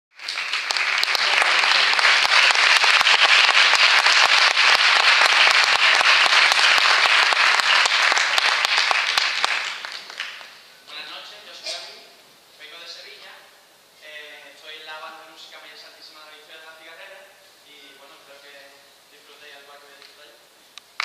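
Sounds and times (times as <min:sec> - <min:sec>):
audience applauding: 0:00.1 - 0:10.6.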